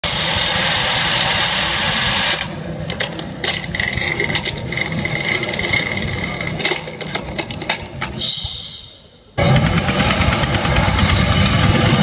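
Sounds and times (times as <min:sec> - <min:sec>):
firework fountains hissing: 0:00.0 - 0:02.9, 0:09.7 - 0:12.0.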